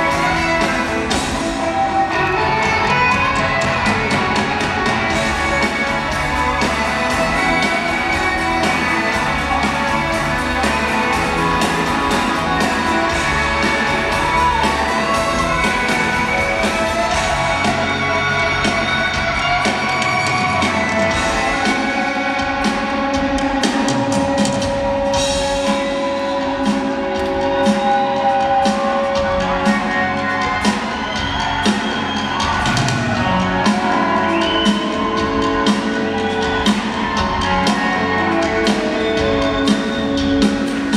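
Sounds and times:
bass guitar: 0.0s - 40.9s
drum kit: 0.0s - 40.9s
electric guitars: 0.0s - 40.9s.

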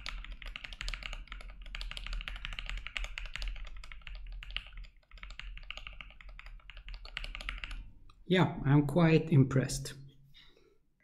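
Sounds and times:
mechanical keyboard typing: 0.0s - 7.8s.

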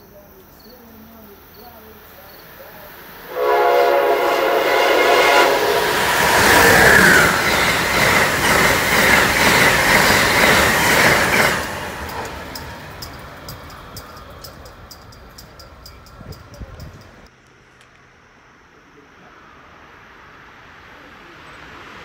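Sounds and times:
train rushing past: 1.2s - 17.3s
train horn blast: 3.3s - 7.4s.

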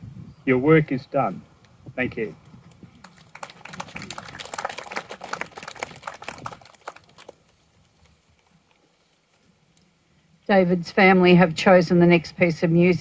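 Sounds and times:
crowd applauding: 3.0s - 7.4s.

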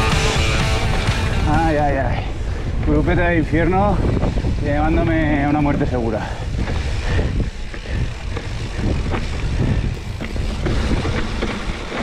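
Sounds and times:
wind rushing over microphone: 0.7s - 12.0s
bike knocking on rough ground: 5.2s - 12.0s.

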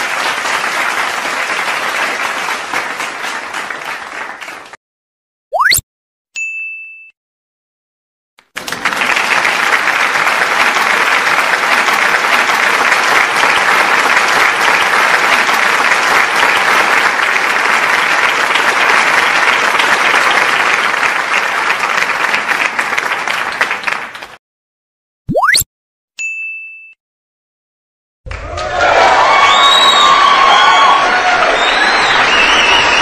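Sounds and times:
audience applauding: 0.0s - 4.8s, 8.4s - 24.4s, 28.3s - 33.0s.

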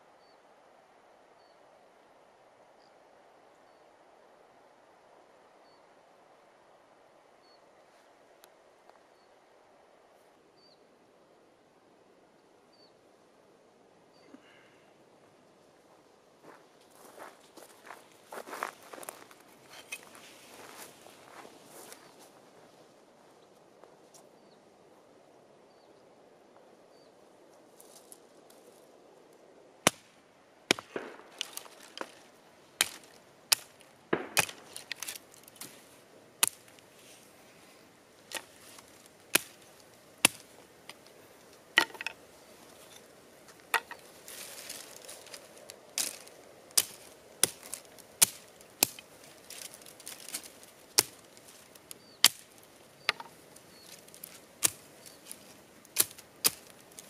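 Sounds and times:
hatchet chopping dry branches: 29.9s - 30.1s, 30.7s - 32.2s, 32.8s - 35.8s, 36.4s - 36.9s, 38.2s - 42.2s, 42.8s - 57.0s.

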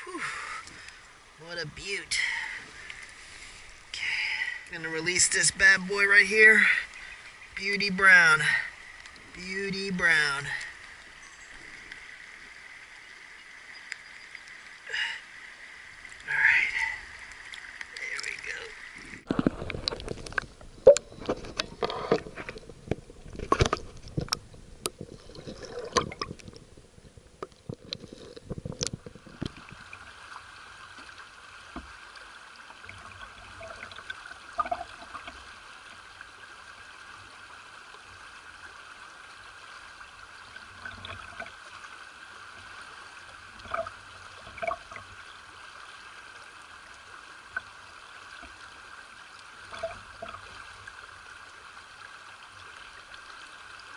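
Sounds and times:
water sloshing against camera: 16.0s - 30.2s.

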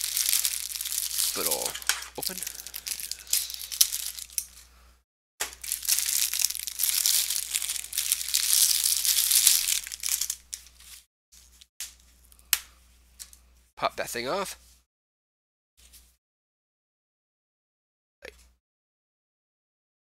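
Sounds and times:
plastic bag crinkling: 0.0s - 4.6s, 5.5s - 11.0s.

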